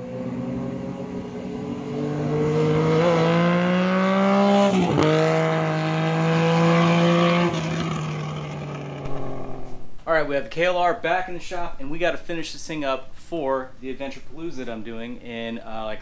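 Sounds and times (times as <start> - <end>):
motorcycle engine accelerating: 0.0 - 10.0.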